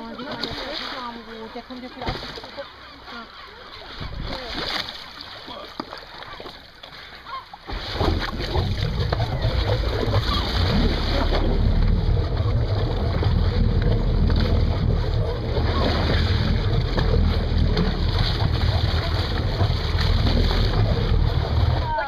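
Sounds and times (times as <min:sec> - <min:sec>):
water rushing along hull: 0:00.0 - 0:22.0
low rumble: 0:07.9 - 0:22.0
wind buffeting microphone: 0:08.2 - 0:22.0.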